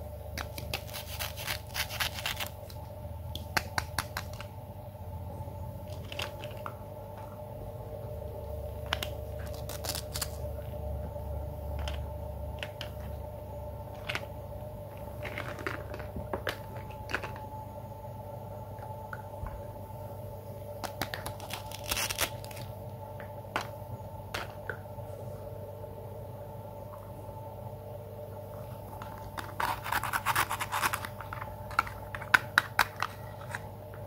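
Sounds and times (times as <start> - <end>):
steady background hum: 0.0 - 34.0
velcro tearing: 0.5 - 2.6, 9.4 - 10.4.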